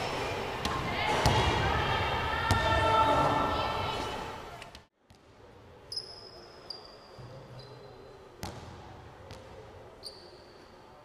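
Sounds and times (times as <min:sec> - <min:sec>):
sneaker squeaks on floor: 0:05.9 - 0:08.6, 0:10.0 - 0:10.8.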